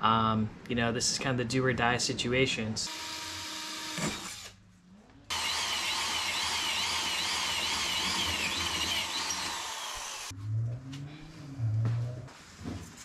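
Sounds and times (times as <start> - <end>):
cordless drill boring through metal: 2.9 - 4.5, 5.3 - 10.3.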